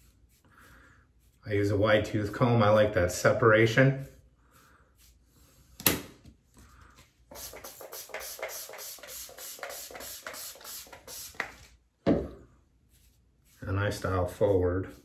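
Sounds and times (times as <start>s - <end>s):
spray bottle hissing: 7.3s - 11.6s.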